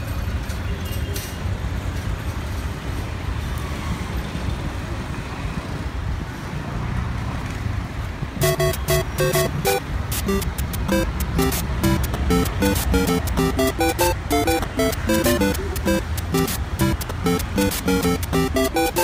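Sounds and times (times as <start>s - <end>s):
music: 8.4s - 19.0s.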